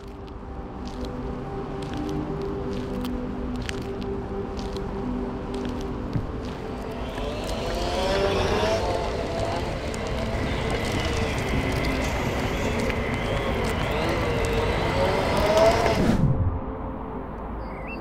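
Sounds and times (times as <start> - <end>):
low rumble: 0.0 - 17.9
electric motor whine: 6.9 - 16.0.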